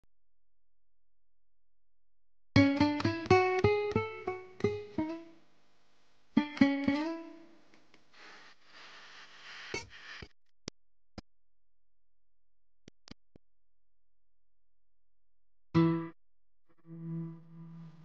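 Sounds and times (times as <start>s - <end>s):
plucked guitar music: 2.6s - 5.4s, 6.4s - 7.6s, 15.8s - 18.0s.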